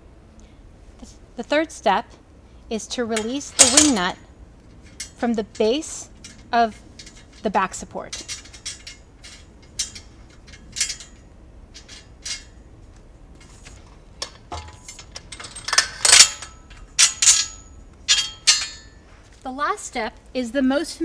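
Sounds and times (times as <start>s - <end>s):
metal clanks ringing: 3.1s - 12.7s, 13.3s - 19.2s
small metal clicks: 3.2s - 19.0s.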